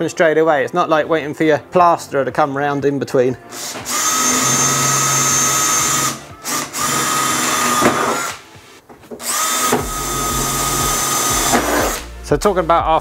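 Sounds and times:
cordless drill whining: 0:03.5 - 0:08.4, 0:09.2 - 0:12.1.

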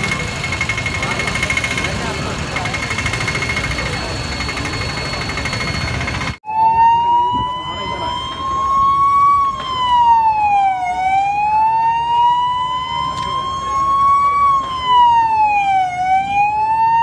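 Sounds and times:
steady noisy din: 0:00.0 - 0:17.0
fire engine siren wailing: 0:03.8 - 0:17.0.

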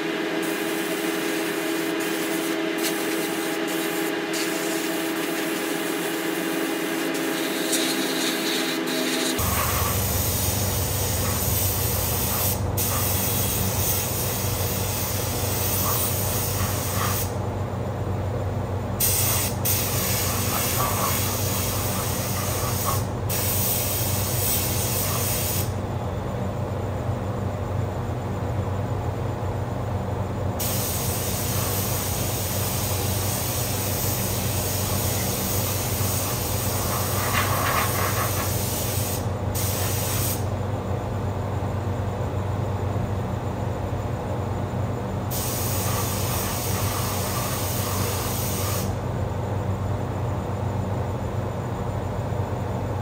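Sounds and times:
paint spray gun hissing: 0:00.0 - 0:17.4, 0:19.0 - 0:25.8, 0:30.6 - 0:40.5, 0:45.3 - 0:49.0
exhaust fan humming: 0:00.0 - 0:53.0.

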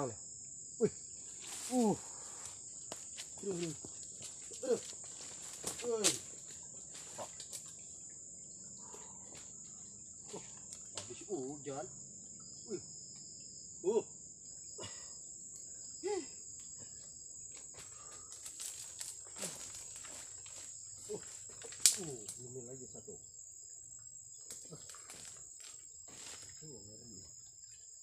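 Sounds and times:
insects droning: 0:00.0 - 0:28.0
clicks and rustles: 0:21.5 - 0:22.4.

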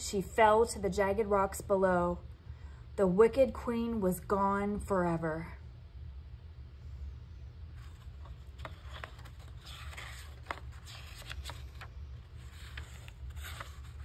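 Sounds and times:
low steady hum: 0:00.0 - 0:14.0
paper rustling and crinkling: 0:07.7 - 0:14.0.

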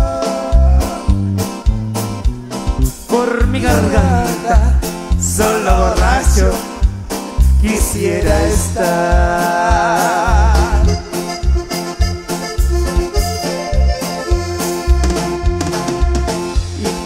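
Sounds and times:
person singing: 0:00.0 - 0:01.2, 0:03.1 - 0:06.7, 0:07.6 - 0:11.3, 0:16.6 - 0:17.0
drums: 0:00.0 - 0:17.0
electric bass: 0:00.0 - 0:17.0
keyboard: 0:00.0 - 0:17.0.

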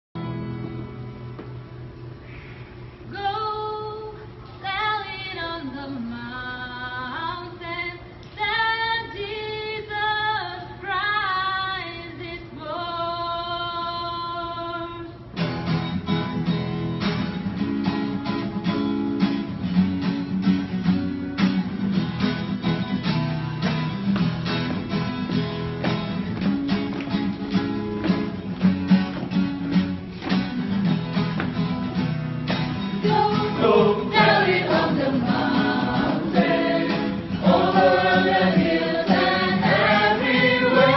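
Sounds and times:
acoustic guitar strumming: 0:15.4 - 0:40.9
vocal group singing: 0:32.9 - 0:40.9.

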